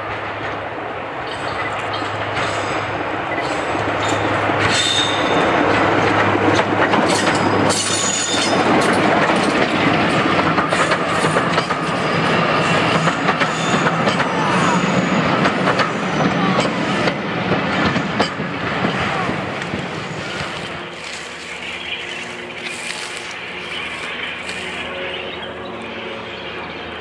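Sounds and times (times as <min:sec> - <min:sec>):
train wheels clattering over rail joints: 0:00.0 - 0:21.7
diesel locomotive engine running: 0:00.0 - 0:27.0
high wheel squeals: 0:03.4 - 0:05.5, 0:07.1 - 0:08.6.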